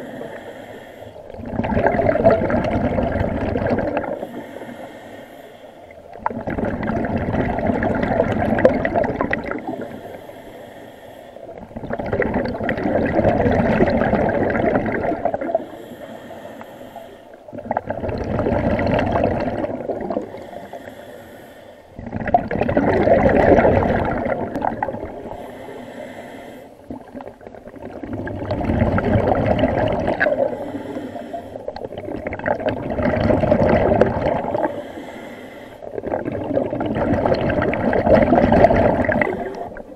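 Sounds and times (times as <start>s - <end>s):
faint regulator hiss: 0.0s - 1.4s, 4.2s - 6.2s, 9.6s - 11.6s, 15.6s - 17.5s, 20.2s - 22.0s, 25.1s - 27.3s, 30.5s - 31.9s, 34.6s - 36.0s
exhaled bubbles underwater: 0.0s - 5.0s, 5.8s - 10.6s, 11.4s - 21.1s, 21.9s - 26.2s, 26.8s - 39.9s.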